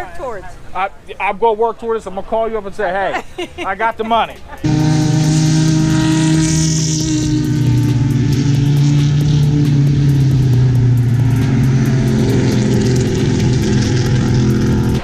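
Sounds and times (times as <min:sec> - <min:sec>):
race car engines passing: 0:03.7 - 0:15.0.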